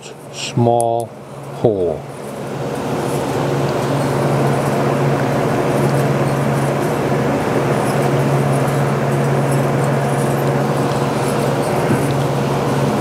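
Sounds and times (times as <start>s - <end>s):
machinery hum: 0.0s - 13.0s.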